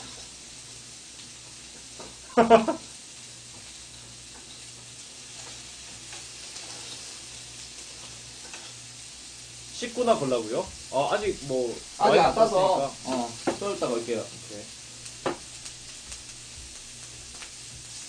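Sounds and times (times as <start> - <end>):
meat sizzling on a grill: 0.0 - 18.0
person laughing: 2.3 - 2.9.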